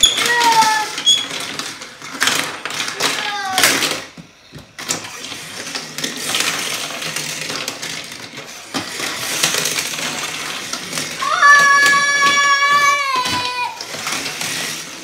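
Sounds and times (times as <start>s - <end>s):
toy cars knocking on plastic: 0.0s - 14.8s
toy cars rattling and clattering: 0.0s - 15.0s
child shouting: 11.2s - 13.8s.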